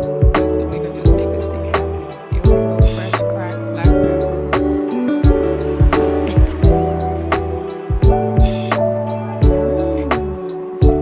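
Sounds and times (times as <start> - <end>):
background music with beat: 0.0 - 11.0.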